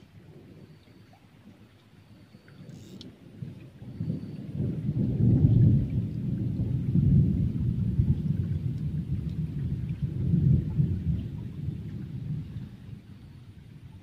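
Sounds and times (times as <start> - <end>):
thunder rumbling: 3.3 - 14.0.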